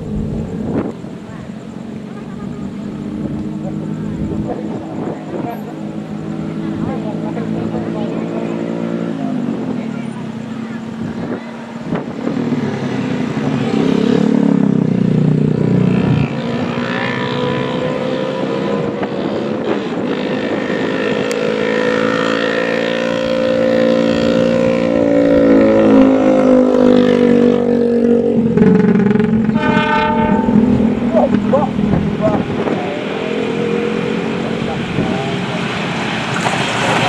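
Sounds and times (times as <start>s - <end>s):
heavy rumble: 0.0s - 16.7s, 24.1s - 37.0s
engine drone: 0.0s - 37.0s.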